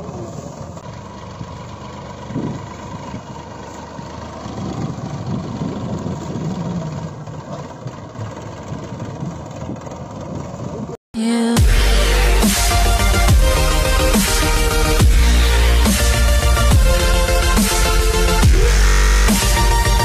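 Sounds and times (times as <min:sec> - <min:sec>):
engine idling: 0:00.0 - 0:11.0, 0:11.6 - 0:20.0
electronic music: 0:11.3 - 0:20.0.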